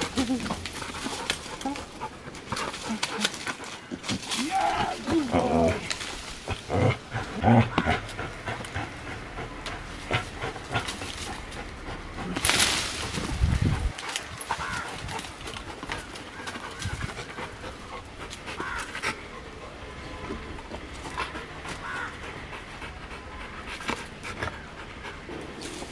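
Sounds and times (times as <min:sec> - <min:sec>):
dog panting hard: 0:07.2 - 0:12.4, 0:13.6 - 0:20.1, 0:21.0 - 0:25.6.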